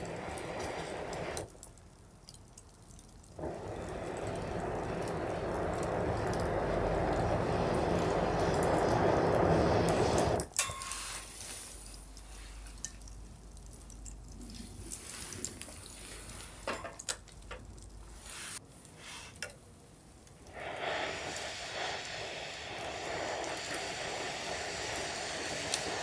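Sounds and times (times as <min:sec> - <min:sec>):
wood fire crackling and popping: 0:00.0 - 0:26.0
breath blown through a pipe: 0:20.5 - 0:26.0.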